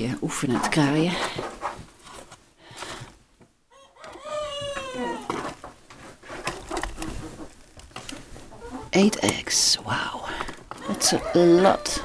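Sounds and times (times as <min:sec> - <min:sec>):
young rooster crowing: 0:03.7 - 0:05.4, 0:10.8 - 0:12.0.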